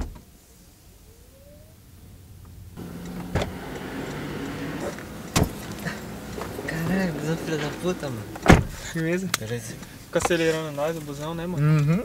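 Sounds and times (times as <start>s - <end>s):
street noise: 0.0s - 12.0s
bus engine humming: 2.0s - 11.7s
knocks and thumps in car seat: 2.8s - 8.9s
car door opening: 2.8s - 9.0s.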